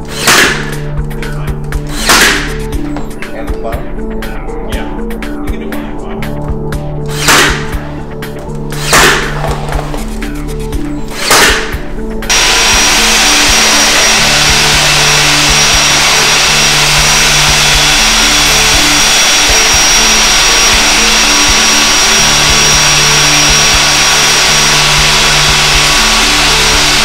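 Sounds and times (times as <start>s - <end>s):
background music: 0.0s - 27.0s
wet dry vacuum running: 12.3s - 27.0s.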